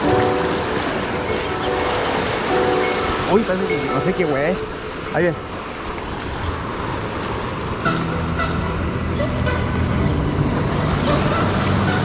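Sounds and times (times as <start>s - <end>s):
surf washing over rocks: 0.0s - 12.0s
low motor hum: 7.8s - 12.0s.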